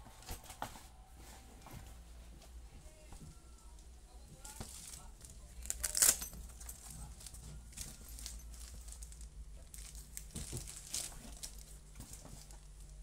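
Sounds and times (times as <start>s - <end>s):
bag rustling and crinkling: 4.4s - 13.0s.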